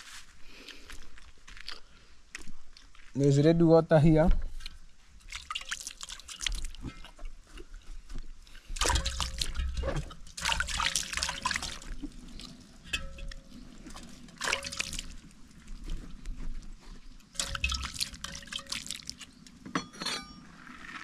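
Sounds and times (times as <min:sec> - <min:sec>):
water splashing and trickling: 0:04.5 - 0:19.7.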